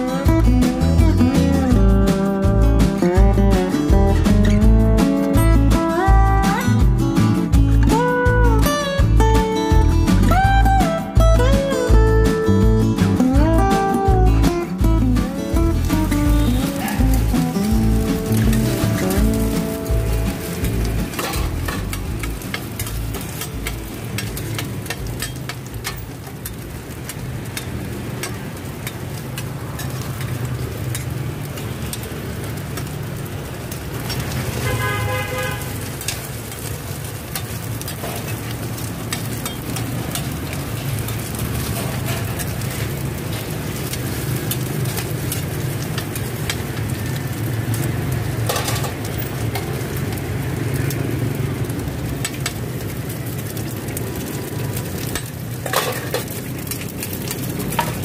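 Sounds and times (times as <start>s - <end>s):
street traffic rumble: 0.0s - 58.0s
metal spatula scraping frying pan: 15.8s - 31.1s, 41.2s - 46.7s, 48.4s - 49.8s, 54.8s - 58.0s
vehicle horn honking: 34.6s - 35.8s.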